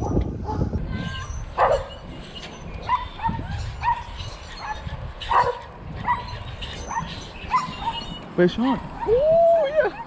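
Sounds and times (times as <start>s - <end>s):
animal yipping calls: 2.8s - 8.2s.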